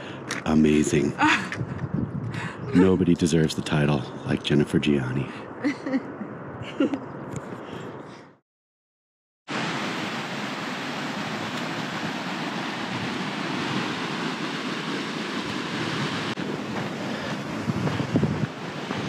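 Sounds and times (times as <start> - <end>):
wind buffeting microphone: 0.2 - 4.2, 11.8 - 19.0
steady rushing noise: 11.2 - 19.0.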